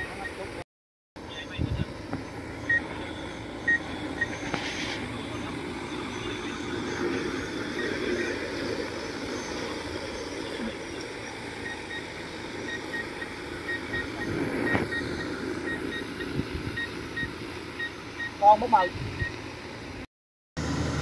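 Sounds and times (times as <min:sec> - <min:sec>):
drone rotors running: 0:01.2 - 0:20.0
short electronic beep: 0:11.6 - 0:18.5.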